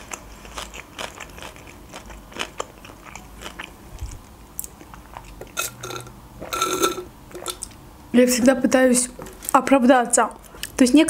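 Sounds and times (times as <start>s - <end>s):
chewing with wet mouth clicks: 0.0s - 5.8s.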